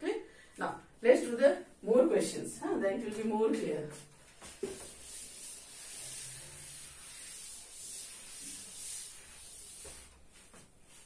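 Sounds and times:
duster rubbing on chalkboard: 0:03.9 - 0:11.0.

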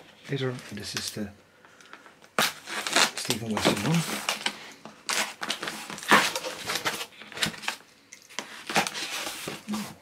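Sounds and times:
blade slitting packing tape: 0:02.4 - 0:03.4, 0:05.1 - 0:07.7.

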